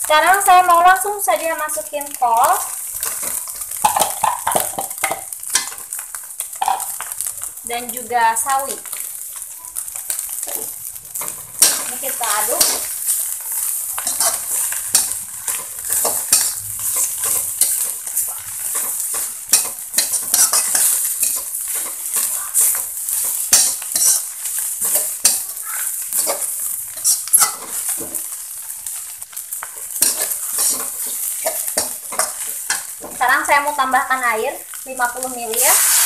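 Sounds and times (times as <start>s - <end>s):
hot oil sizzling: 0.0s - 36.0s
metal spoon scraping a wok: 10.3s - 33.8s, 35.5s - 36.0s.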